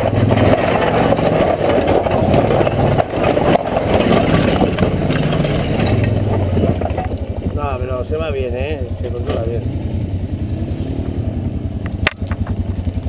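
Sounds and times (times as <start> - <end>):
knocks and rattles: 0.0 - 7.9, 11.8 - 13.0
atv engine running: 0.0 - 13.0.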